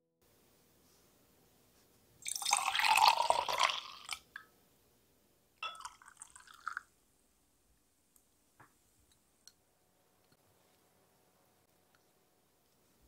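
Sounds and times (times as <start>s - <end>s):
water pouring from cup: 2.2s - 4.3s, 5.6s - 6.9s
milk pouring into beaker: 2.2s - 4.4s, 5.6s - 6.9s.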